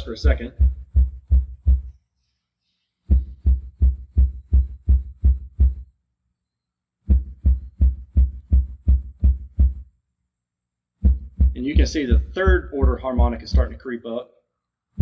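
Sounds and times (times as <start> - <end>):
subwoofer low thuds: 0.0 - 1.9, 3.1 - 5.8, 7.1 - 9.8, 11.0 - 13.8.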